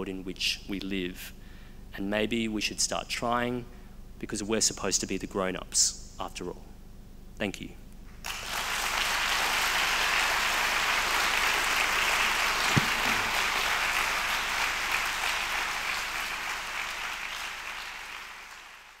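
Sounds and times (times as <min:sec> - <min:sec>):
audience applauding: 0:08.3 - 0:19.0
low thump: 0:12.7 - 0:13.6.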